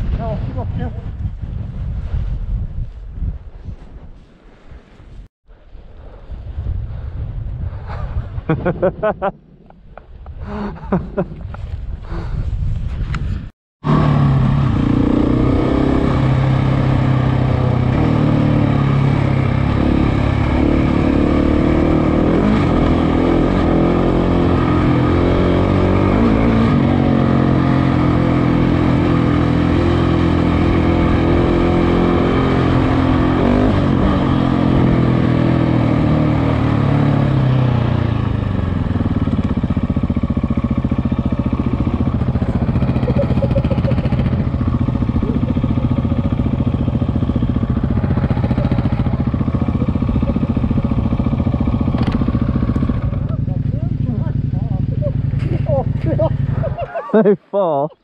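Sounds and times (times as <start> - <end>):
motorcycle engine running: 13.8 - 57.0.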